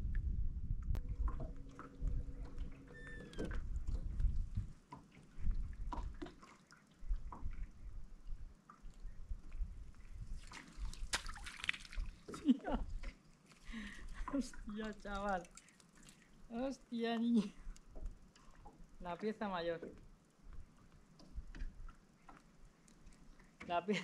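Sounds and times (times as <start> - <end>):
steady hum: 0.0 - 4.8
water lapping and dripping: 0.9 - 24.0
water splashing: 1.0 - 24.0.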